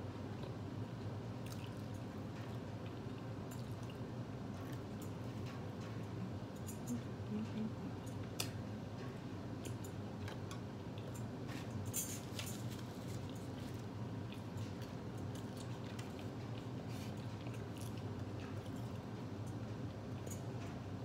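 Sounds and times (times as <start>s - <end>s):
air conditioner hum: 0.0s - 21.0s
person chewing food: 1.4s - 5.5s, 9.7s - 20.5s.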